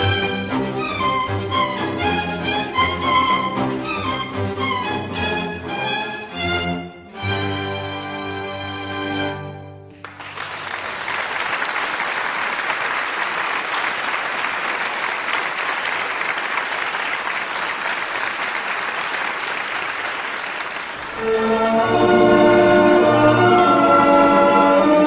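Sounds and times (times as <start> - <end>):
instrumental music: 0.0 - 10.0, 21.0 - 25.0
audience applauding: 9.9 - 23.7.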